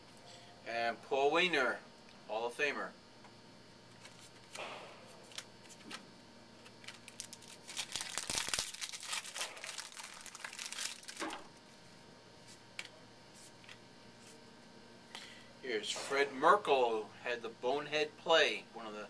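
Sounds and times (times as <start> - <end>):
wrapper crinkling: 6.7 - 11.4.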